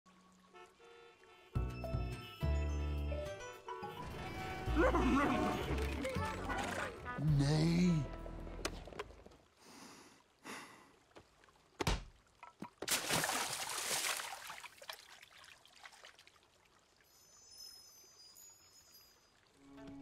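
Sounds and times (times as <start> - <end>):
water trickle: 0.1 - 3.4, 8.8 - 20.0
water splash: 11.8 - 16.4.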